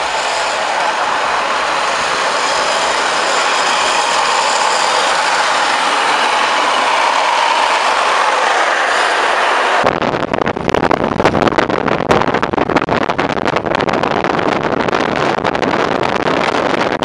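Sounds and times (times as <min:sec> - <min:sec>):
carts rolling over asphalt: 0:00.0 - 0:09.8.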